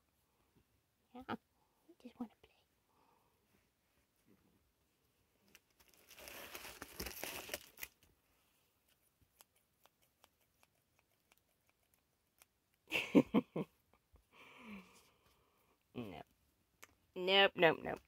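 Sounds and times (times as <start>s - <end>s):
foil insulation crinkling: 5.6s - 8.0s
tape tearing: 5.8s - 8.0s.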